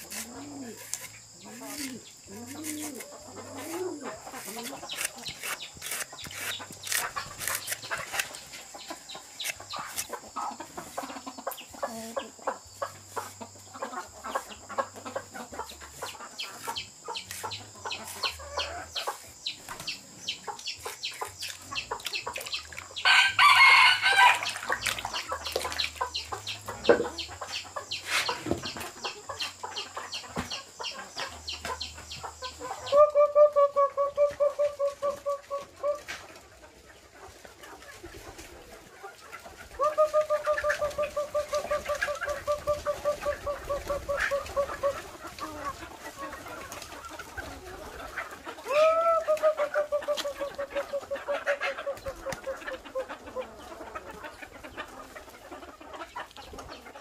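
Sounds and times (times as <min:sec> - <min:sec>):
chickens calling: 0:00.0 - 0:57.0
rooster crowing: 0:23.0 - 0:24.5.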